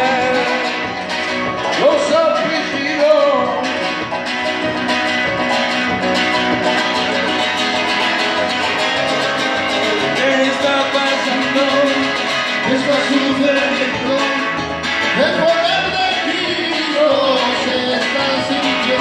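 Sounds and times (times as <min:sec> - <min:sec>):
person singing: 0:00.0 - 0:04.2, 0:08.1 - 0:19.0
keyboard: 0:00.0 - 0:19.0
strummed acoustic guitar: 0:00.0 - 0:19.0.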